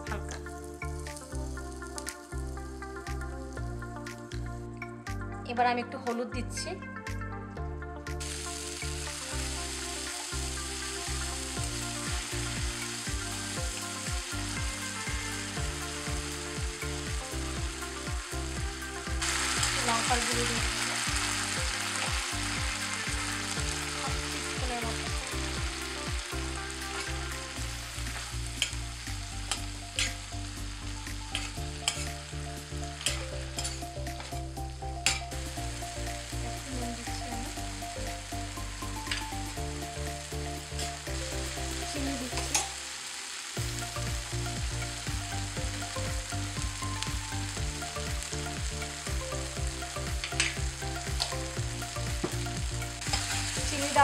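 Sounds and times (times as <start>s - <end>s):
spices sizzling in hot oil: 0.0s - 7.3s, 8.1s - 54.0s
metal spatula scraping pan: 31.4s - 32.2s, 33.0s - 33.8s.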